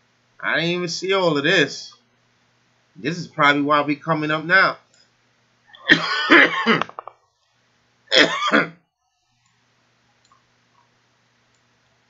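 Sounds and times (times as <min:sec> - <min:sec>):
faint low room hum: 0:00.0 - 0:12.0
man clearing his throat: 0:05.8 - 0:07.0, 0:08.1 - 0:08.8.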